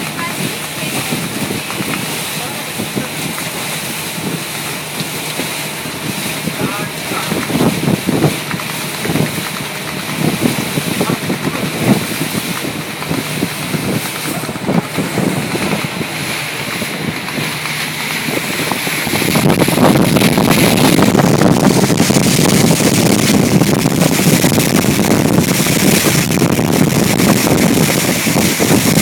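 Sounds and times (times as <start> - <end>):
boat engine running: 0.0 - 29.0
water rushing along hull: 0.0 - 29.0
wind buffeting microphone: 0.0 - 29.0.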